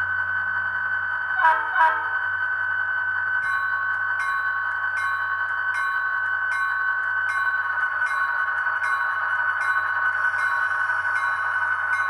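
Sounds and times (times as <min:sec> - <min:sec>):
locomotive bell ringing: 0:01.3 - 0:12.0
locomotive horn blasts: 0:01.4 - 0:02.2.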